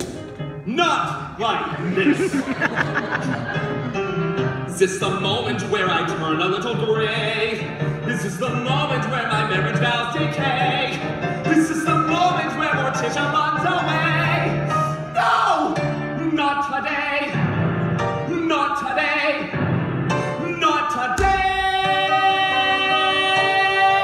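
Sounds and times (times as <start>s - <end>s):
man singing: 4.7s - 17.5s, 18.2s - 19.6s, 20.2s - 24.0s.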